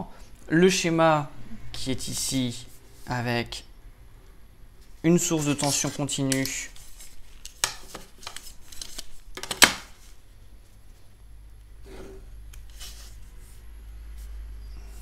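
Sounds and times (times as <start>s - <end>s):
ruler clicks and paper rustles: 5.3s - 9.9s.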